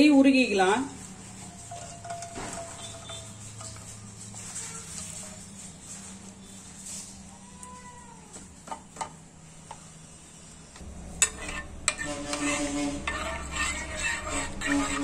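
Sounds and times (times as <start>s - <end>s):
metal spoon scraping pan: 1.3s - 5.2s, 10.8s - 15.0s.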